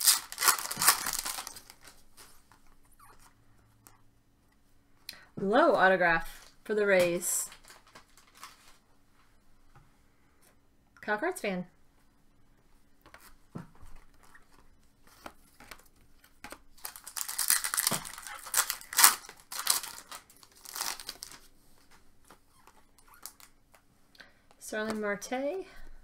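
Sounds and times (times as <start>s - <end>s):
plastic packaging crinkling: 0.0s - 2.3s, 6.3s - 8.8s, 15.5s - 21.5s.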